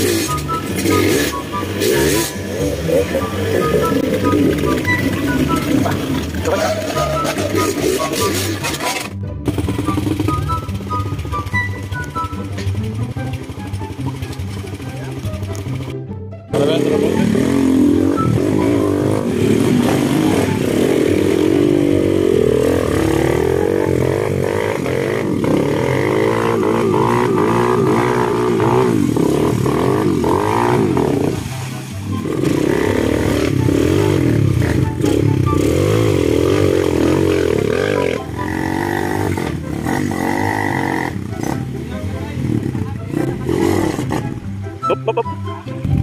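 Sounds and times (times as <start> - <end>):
motorcycle engine revving: 0.0 - 44.7.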